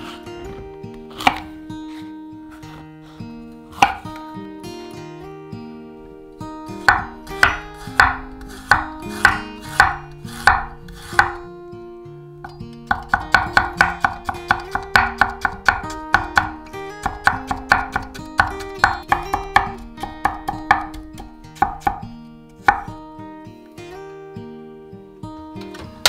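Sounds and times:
soft acoustic guitar music: 0.0 - 26.0
knife chopping on wooden board: 1.1 - 1.6, 3.7 - 4.0, 6.8 - 11.4, 12.4 - 22.0, 22.6 - 22.9.

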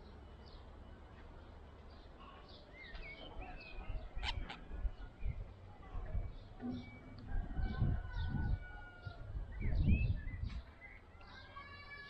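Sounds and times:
low rumbling on microphone: 3.3 - 10.8
budgerigar chirping and warbling: 4.1 - 4.8.

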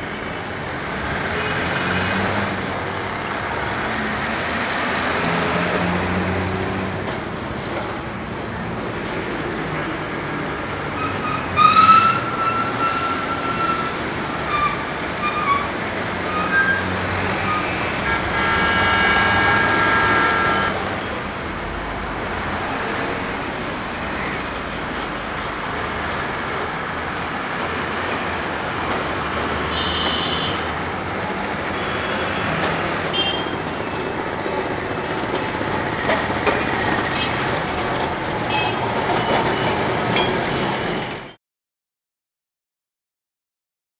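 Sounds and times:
city traffic rumble: 0.0 - 41.4
vehicle horns honking: 16.4 - 21.1, 29.7 - 30.7, 31.7 - 34.1.

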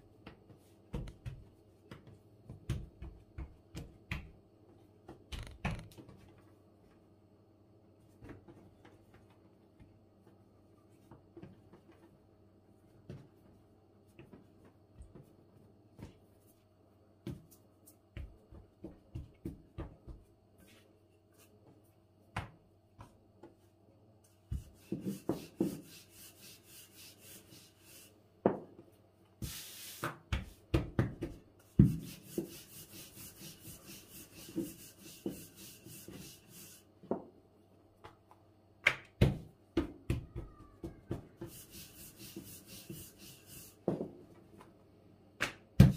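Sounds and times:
rolling pin rubbing dough: 24.5 - 28.2, 31.8 - 36.9, 41.3 - 44.0.

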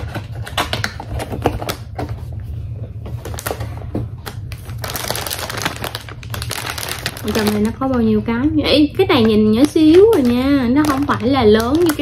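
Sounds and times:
steady low hum: 0.0 - 12.0
plastic crinkling: 3.0 - 8.2, 9.0 - 12.0.

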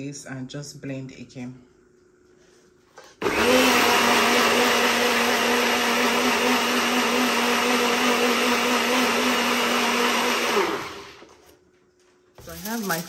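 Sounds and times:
blender motor running: 3.2 - 11.3.

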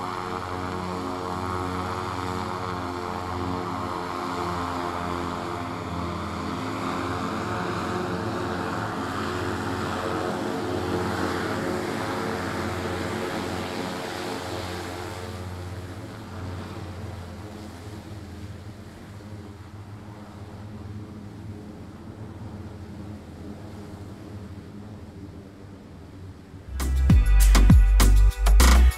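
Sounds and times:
electric propellers humming: 0.0 - 27.6.

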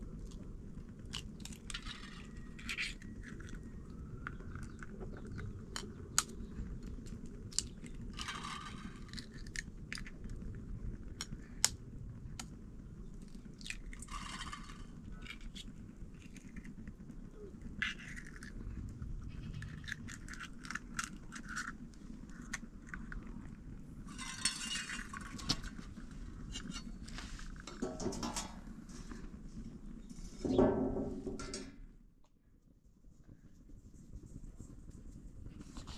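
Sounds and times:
steady low rumble: 0.0 - 35.9
kitchenware scraping: 27.7 - 28.6.

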